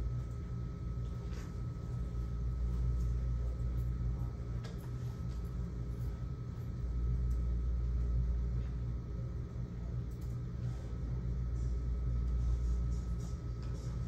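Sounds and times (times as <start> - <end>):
low room rumble and hum: 0.0 - 14.0.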